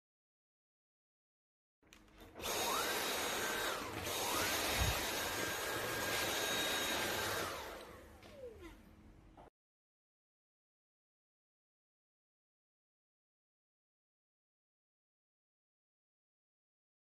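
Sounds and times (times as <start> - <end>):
vacuum cleaner motor whine: 2.2 - 9.0.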